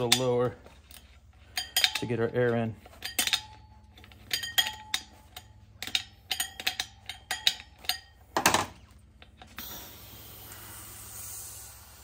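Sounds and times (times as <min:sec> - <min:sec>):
small metallic clicks and clinks: 0:00.0 - 0:08.6
compressed air hissing: 0:09.6 - 0:12.0.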